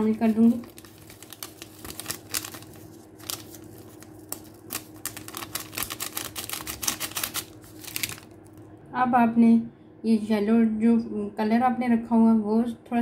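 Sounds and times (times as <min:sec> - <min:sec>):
paper sachet crinkling: 0:00.0 - 0:08.6.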